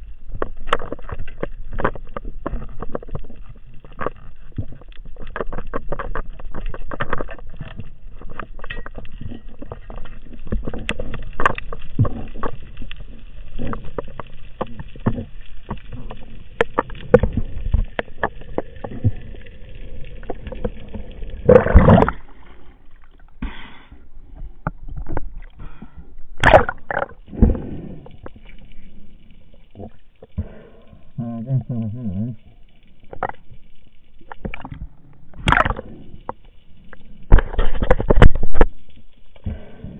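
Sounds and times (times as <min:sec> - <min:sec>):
underwater clicks and knocks: 0:00.0 - 0:23.4, 0:24.3 - 0:28.9, 0:33.0 - 0:39.6
rush of water: 0:03.9 - 0:23.1, 0:34.2 - 0:35.9.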